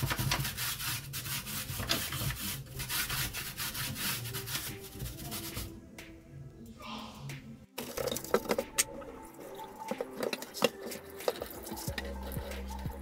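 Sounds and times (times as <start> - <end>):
brush scrubbing filter panel: 7.8 - 13.0.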